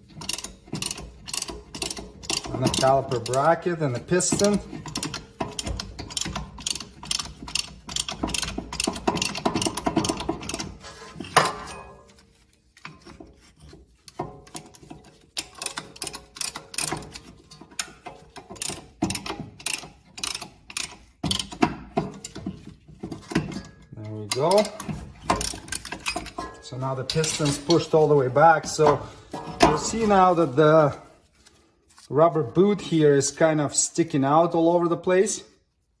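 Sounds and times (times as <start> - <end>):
ratcheting tool clicking: 0.2 - 3.5, 4.8 - 10.7, 15.4 - 21.6.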